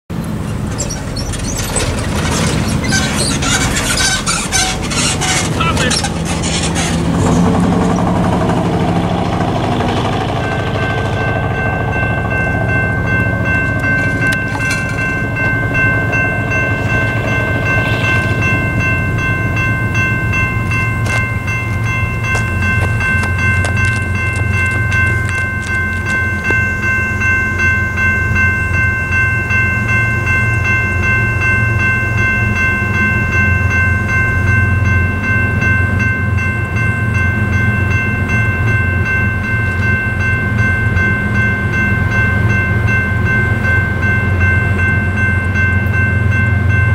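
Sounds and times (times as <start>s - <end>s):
crossing bell ringing: 0.1s - 46.9s
locomotive rumble: 0.1s - 46.9s.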